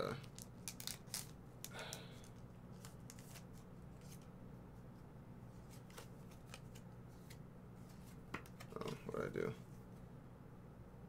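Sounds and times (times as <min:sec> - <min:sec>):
trading cards shuffling: 0:00.1 - 0:04.3, 0:05.6 - 0:09.2.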